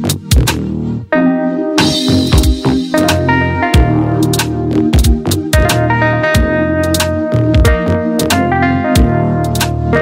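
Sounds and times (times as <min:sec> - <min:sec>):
bass line: 0:00.0 - 0:10.0
sustained melodic notes: 0:01.0 - 0:10.0
drum hits: 0:01.8 - 0:04.0.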